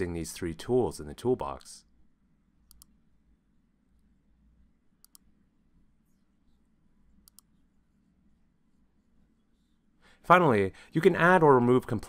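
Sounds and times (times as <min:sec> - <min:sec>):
faint computer mouse clicks: 0:02.7 - 0:03.0, 0:05.0 - 0:05.3, 0:07.2 - 0:07.6.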